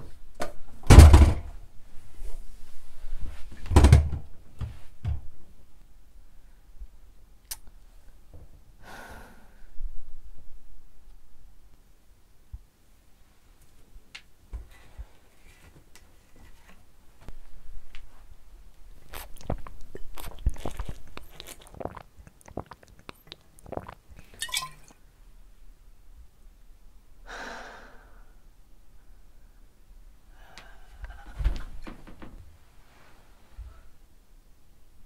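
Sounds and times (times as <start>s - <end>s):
breathy exhale: 8.8s - 9.7s, 27.3s - 28.4s, 30.3s - 31.3s
person swallowing: 19.0s - 24.9s.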